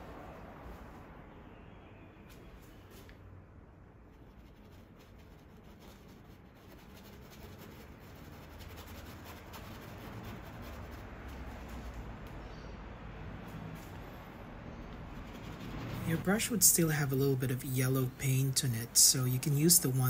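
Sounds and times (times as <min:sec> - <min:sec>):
paintbrush scratching on canvas: 0:04.1 - 0:12.2, 0:14.9 - 0:18.0.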